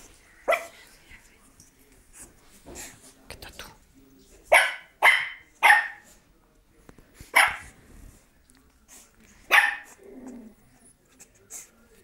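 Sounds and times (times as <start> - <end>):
dog barking: 0.4 - 0.8, 4.5 - 6.1, 7.3 - 7.8, 9.5 - 10.0.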